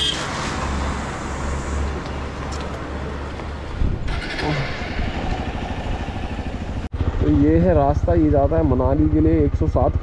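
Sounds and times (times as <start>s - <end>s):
road traffic noise: 0.0s - 10.0s
motorcycle engine idling: 4.1s - 10.0s.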